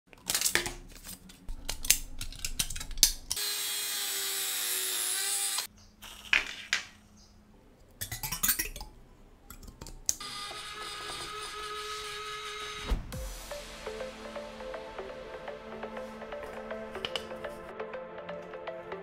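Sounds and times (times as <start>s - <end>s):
rotary tool grinding wood: 3.4s - 5.7s, 10.2s - 12.9s.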